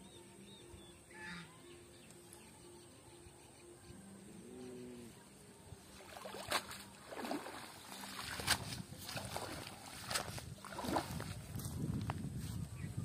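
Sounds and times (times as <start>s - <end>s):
water splashing off net: 6.0s - 11.3s.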